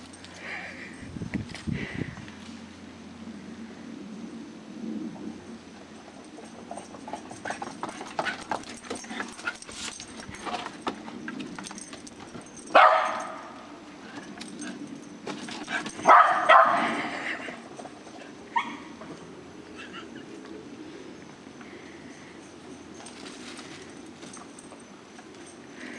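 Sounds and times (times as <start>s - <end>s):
small dog barking: 12.7s - 13.6s, 16.0s - 17.0s.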